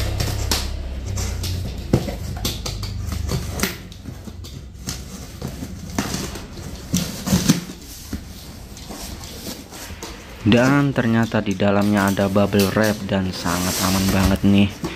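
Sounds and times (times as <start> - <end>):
low rumble: 0.0 - 9.0
cardboard crinkling and scraping: 0.0 - 14.9.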